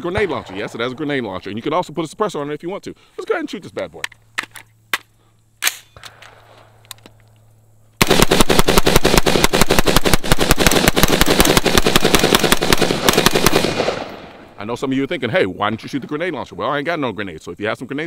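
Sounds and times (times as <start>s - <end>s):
sharp rifle clicks: 4.0s - 14.4s
rapid automatic gunfire: 8.0s - 14.1s.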